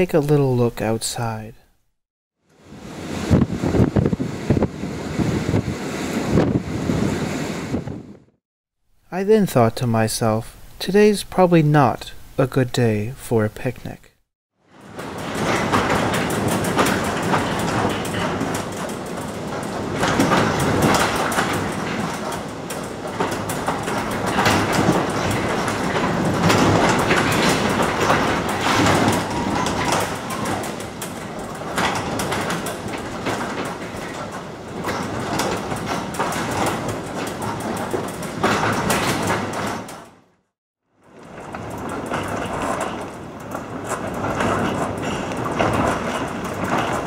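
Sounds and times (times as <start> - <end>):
wind rushing: 2.6 - 8.3
garage door rattling: 14.7 - 40.4, 41.0 - 47.0.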